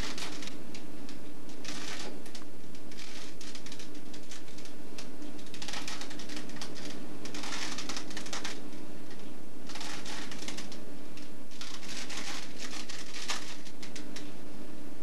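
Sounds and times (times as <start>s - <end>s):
hands rustling and clicking: 0.0s - 14.3s.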